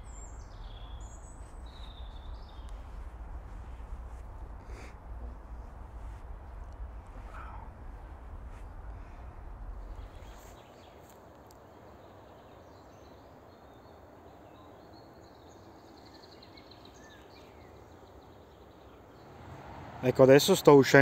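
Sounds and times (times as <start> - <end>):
low rumble: 0.0 - 10.8
low background hum: 0.0 - 20.0
faint birds chirping: 0.0 - 21.0.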